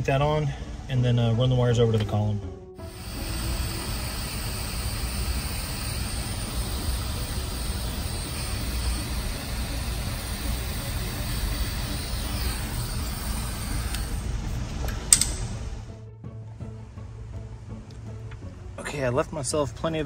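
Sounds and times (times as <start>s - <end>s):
heat gun blowing: 2.8s - 15.2s
sharp click: 14.9s - 15.5s.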